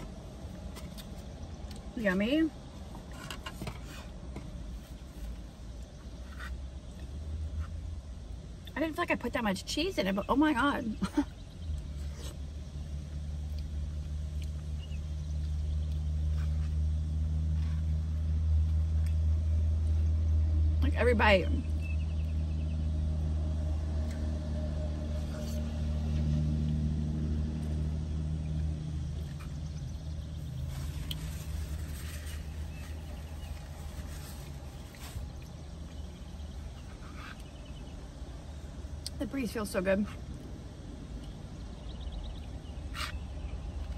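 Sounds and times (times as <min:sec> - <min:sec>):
vehicle engine hum: 0:00.0 - 0:43.9
low rumble: 0:11.3 - 0:39.1.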